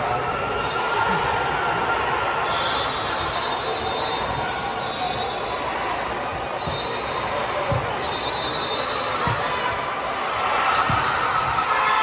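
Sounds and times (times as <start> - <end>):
voices echoing in a gym: 0.0 - 12.0
shoe squeaks: 2.9 - 7.3.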